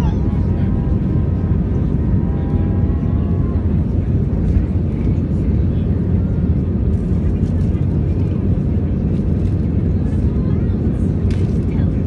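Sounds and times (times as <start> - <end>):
aircraft engines rumbling: 0.0 - 12.0
airflow over fuselage: 0.0 - 12.0.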